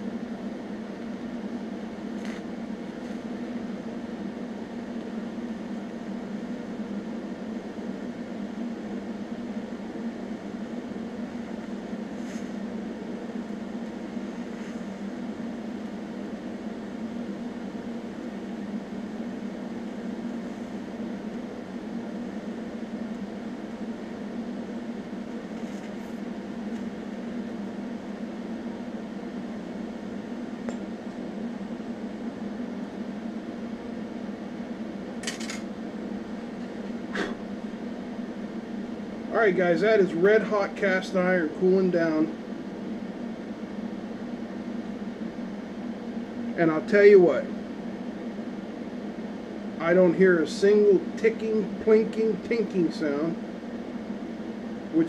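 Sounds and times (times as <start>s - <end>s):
welder humming: 0.0s - 55.0s
sharp clicks of welding arc: 35.2s - 35.7s.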